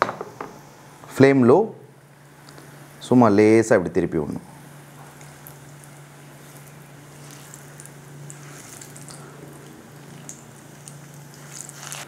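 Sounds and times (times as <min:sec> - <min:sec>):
low steady hum: 0:00.0 - 0:12.0
dough sizzling in oil: 0:04.8 - 0:12.0.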